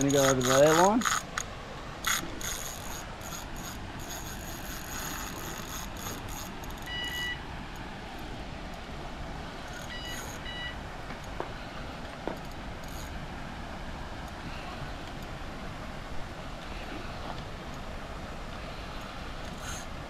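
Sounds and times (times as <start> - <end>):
fishing reel drag clicking: 0.0 - 7.3, 19.4 - 19.9
electronic beeps: 6.8 - 7.4, 9.8 - 10.8.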